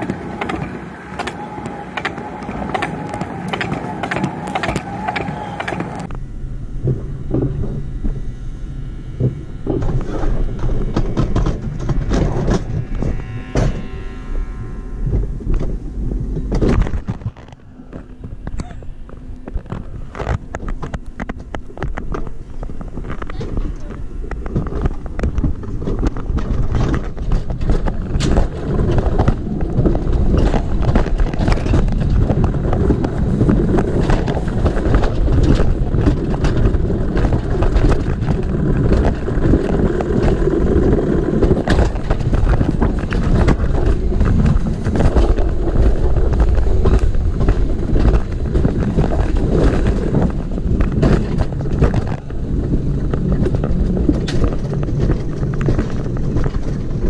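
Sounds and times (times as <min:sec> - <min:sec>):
sharp clicks and knocks from track: 0:00.0 - 0:06.1, 0:23.0 - 0:57.0
sled wheels rumbling on rails: 0:00.0 - 0:57.0
wind buffeting microphone: 0:00.0 - 0:57.0.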